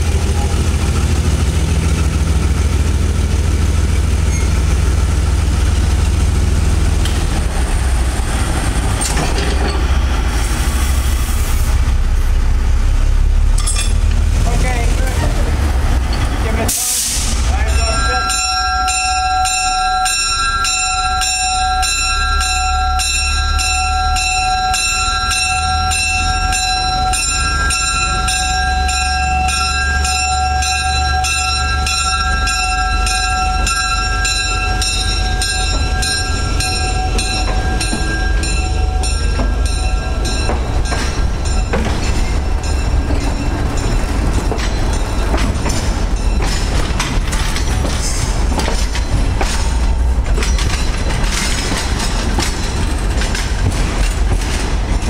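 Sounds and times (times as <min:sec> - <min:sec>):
wheels clicking on track: 0:00.0 - 0:10.7, 0:12.9 - 0:55.0
train rumbling on rails: 0:00.0 - 0:55.0
bell ringing: 0:17.6 - 0:47.2.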